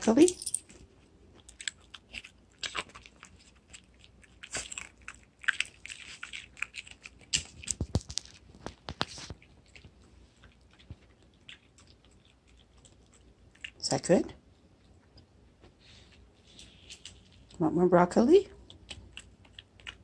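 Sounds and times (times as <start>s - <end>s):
dog crunching broccoli: 0.8s - 13.9s, 18.6s - 20.0s.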